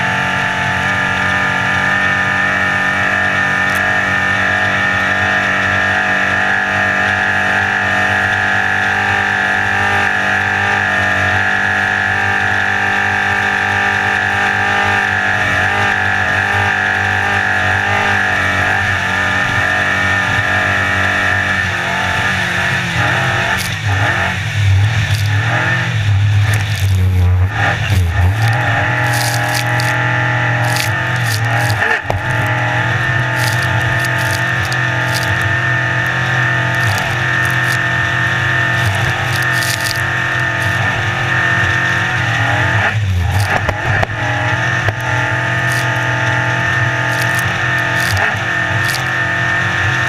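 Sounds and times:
boat engine at high revs: 0.0s - 50.0s
water splashing: 25.0s - 25.5s, 26.4s - 40.9s, 47.1s - 49.2s.

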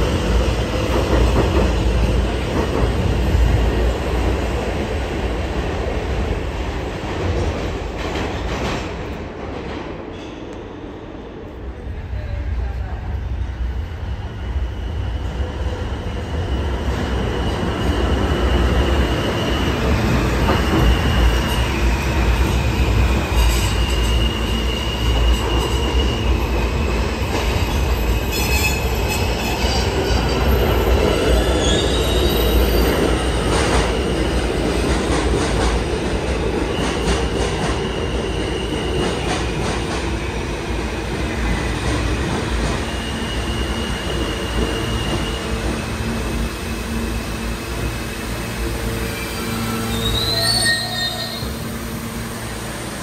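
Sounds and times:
train wheels rumbling on rails: 0.0s - 53.0s
high wheel squeal: 49.1s - 51.7s.

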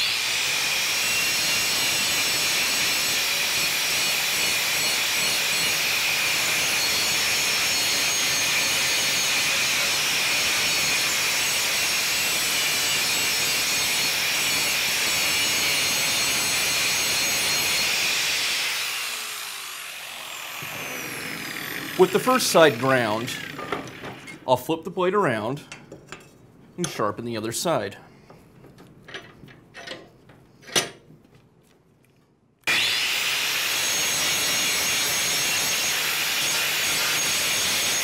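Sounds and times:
angle grinder grinding steel: 0.0s - 24.4s, 32.7s - 38.0s.

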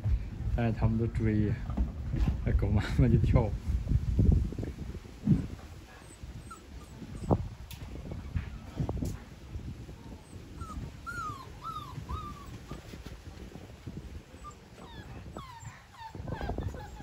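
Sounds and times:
puppies whining: 6.0s - 8.7s, 10.2s - 13.0s, 14.0s - 17.0s
paws scuffling on quilt: 10.6s - 14.2s.

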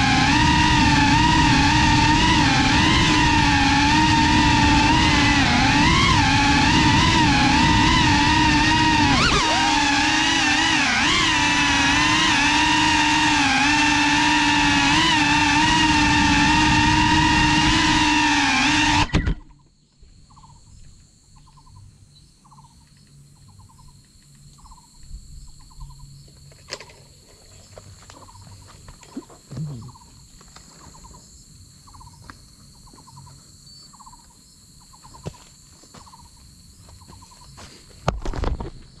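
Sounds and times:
drone motors whirring: 0.0s - 19.6s
faint high whine: 0.0s - 39.0s
insect chirping: 19.1s - 39.0s.

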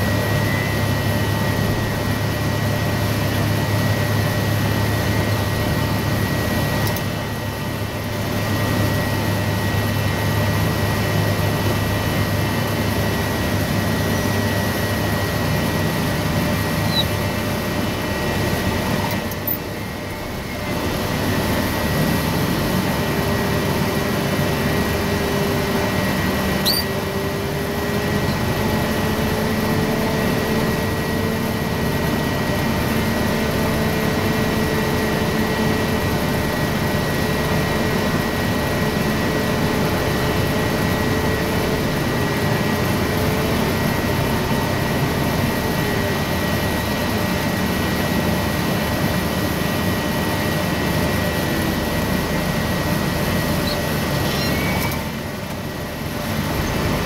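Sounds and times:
forklift engine running: 0.0s - 57.0s
high whine: 51.0s - 57.0s.

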